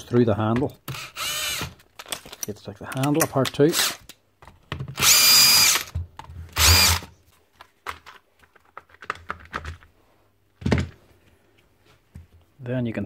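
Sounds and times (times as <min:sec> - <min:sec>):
cordless drill motor whine: 0:01.0 - 0:01.6, 0:05.0 - 0:05.9, 0:06.6 - 0:07.0.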